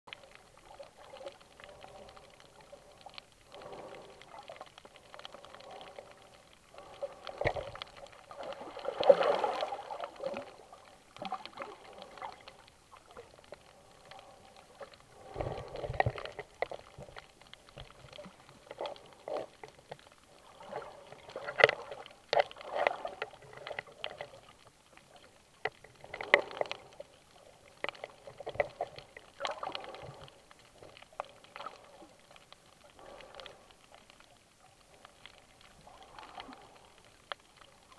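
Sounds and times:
muffled underwater water sloshing: 0.1 - 37.9.

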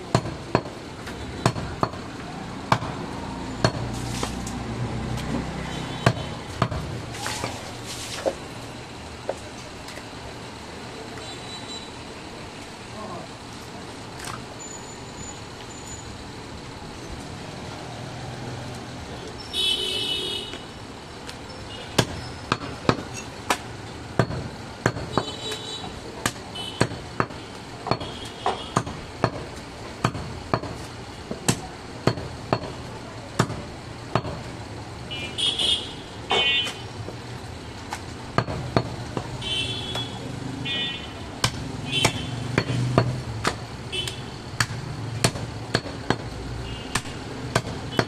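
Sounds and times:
cleaver chopping on wooden block: 6.0 - 7.6, 26.2 - 32.8, 41.4 - 46.3, 46.9 - 48.0.

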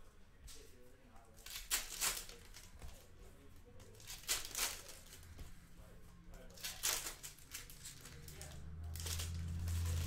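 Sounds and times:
foil wrappers crinkling: 4.0 - 5.3, 6.5 - 10.0.

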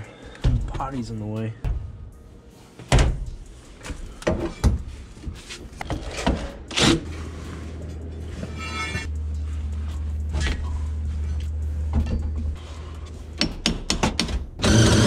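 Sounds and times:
steady low hum: 7.0 - 13.4.

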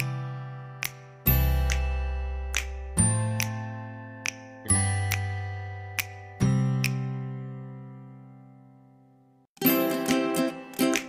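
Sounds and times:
ukulele chords: 9.6 - 11.0.

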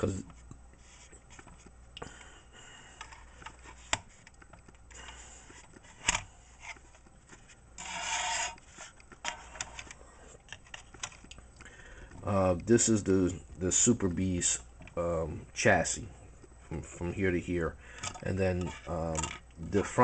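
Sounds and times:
loud scraping rub: 7.8 - 8.9
plastic rubbing and small clicks: 8.4 - 11.7.

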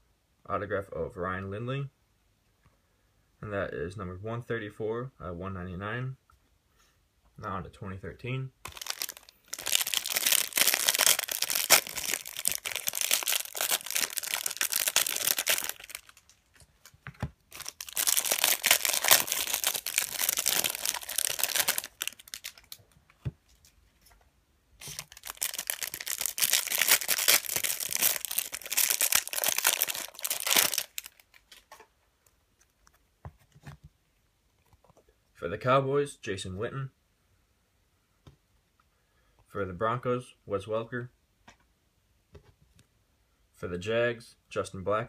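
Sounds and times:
plastic wrapping crackling: 8.6 - 23.8, 24.8 - 33.0.

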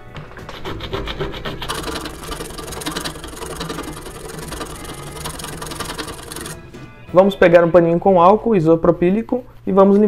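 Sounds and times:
hand file rasping on steel: 0.3 - 6.6.

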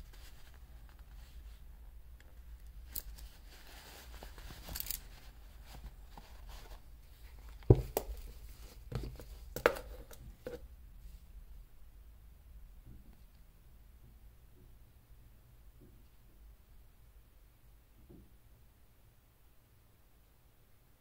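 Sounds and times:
packaging rustling: 2.7 - 10.2.

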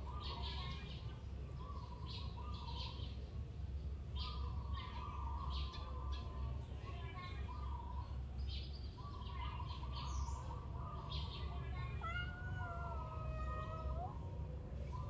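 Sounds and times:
kittens meowing: 11.4 - 15.0.

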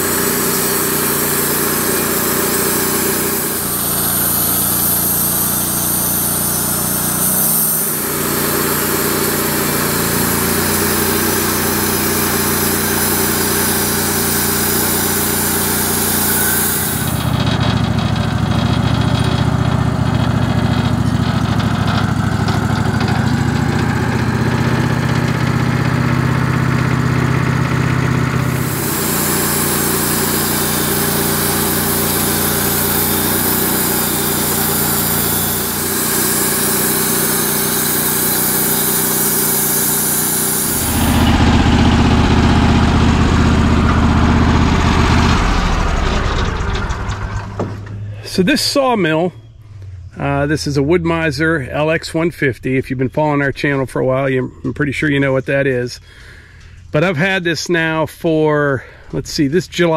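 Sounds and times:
band blade cutting log hiss: 0.0 - 17.4, 28.2 - 43.1
bandsaw mill engine: 0.0 - 52.0.

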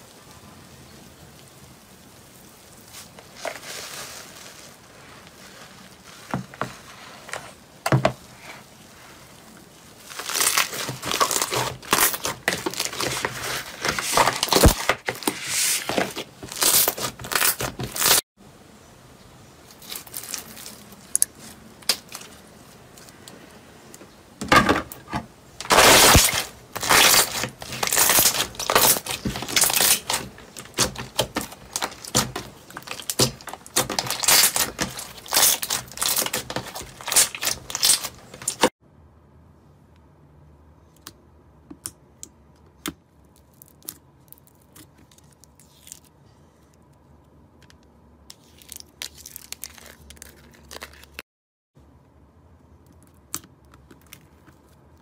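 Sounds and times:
slime crackling and squishing: 1.5 - 18.3, 19.6 - 23.2, 25.6 - 38.7, 43.1 - 46.8, 48.3 - 51.2.

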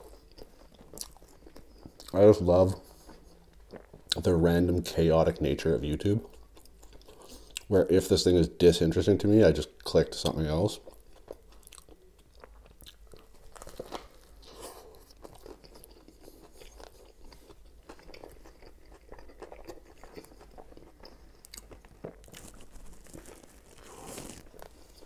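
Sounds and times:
chewing with mouth clicks: 0.0 - 4.3, 6.2 - 7.7, 10.8 - 25.0
biting crusty bread: 11.2 - 25.0.

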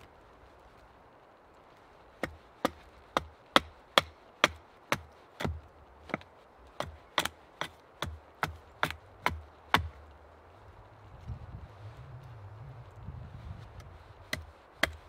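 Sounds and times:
hatchet chopping wood: 2.2 - 10.0, 14.2 - 15.0.

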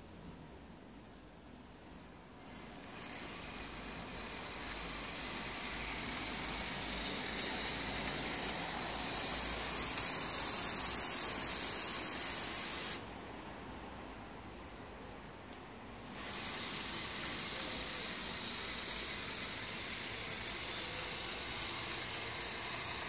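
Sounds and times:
model tram motor whirring: 2.4 - 13.0, 16.0 - 23.0.

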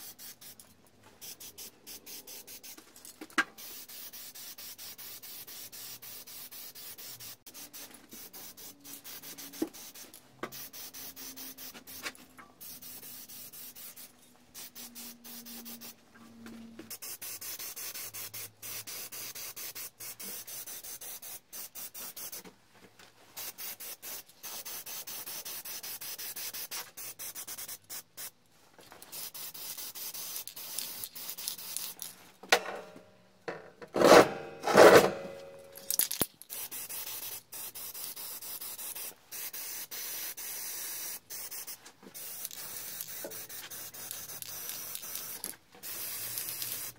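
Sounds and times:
spray paint can hissing: 0.0 - 16.0, 16.9 - 22.4, 23.4 - 28.3, 29.0 - 32.1, 35.8 - 46.9
anvil scraping on concrete: 33.9 - 36.0.

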